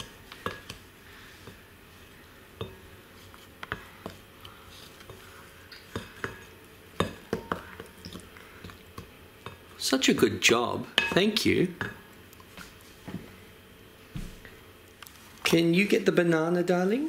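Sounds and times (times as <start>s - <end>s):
wooden spoon clinking glass bowl: 11.0s - 12.0s.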